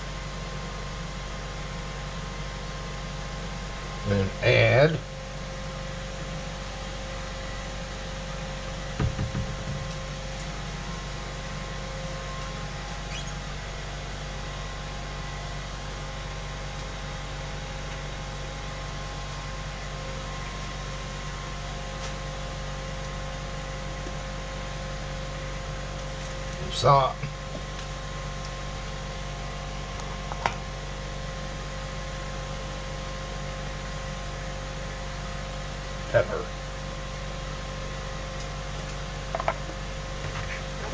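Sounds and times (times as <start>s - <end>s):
appliance hum with hiss: 0.0s - 40.9s
low knocks: 9.0s - 10.0s.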